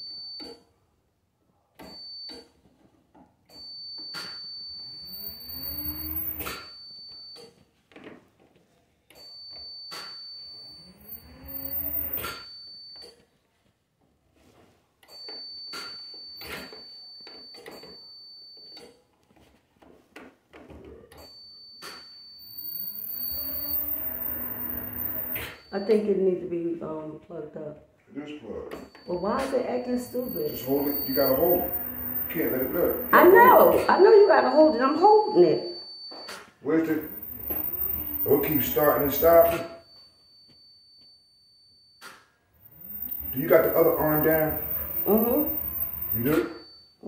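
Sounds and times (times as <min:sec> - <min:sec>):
steady high beep: 0:04.0 - 0:07.2, 0:09.9 - 0:12.4, 0:21.8 - 0:26.3, 0:28.9 - 0:40.0, 0:42.7 - 0:46.9
stair lift motor whining: 0:04.8 - 0:06.5, 0:10.8 - 0:12.2, 0:22.5 - 0:25.9, 0:29.1 - 0:34.3, 0:36.9 - 0:39.7, 0:42.6 - 0:46.6.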